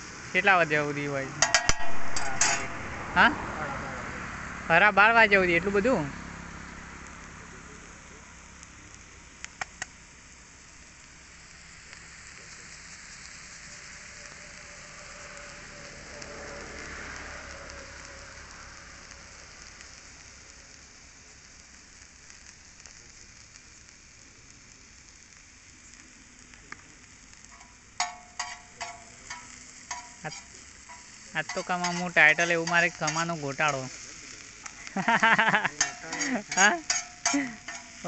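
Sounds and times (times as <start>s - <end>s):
food sizzling on griddle: 0.0s - 38.0s
metal spatula clanking on griddle: 1.4s - 2.9s, 27.5s - 33.8s, 35.7s - 38.0s.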